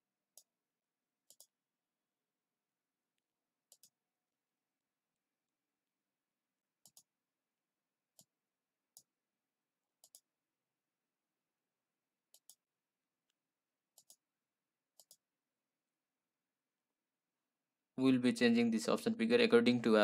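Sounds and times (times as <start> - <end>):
faint computer mouse clicks: 1.2 - 1.5, 3.7 - 4.0, 10.0 - 10.3, 14.0 - 14.2, 15.0 - 15.2.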